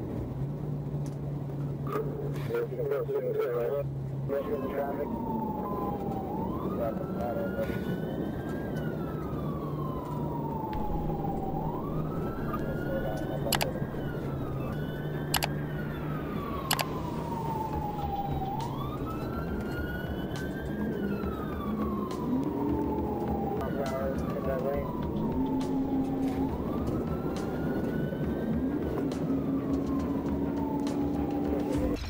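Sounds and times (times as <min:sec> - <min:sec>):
car road and engine noise: 0:00.0 - 0:32.0
police siren wailing: 0:01.3 - 0:32.0
sharp clicks: 0:13.2 - 0:15.6, 0:16.6 - 0:17.0.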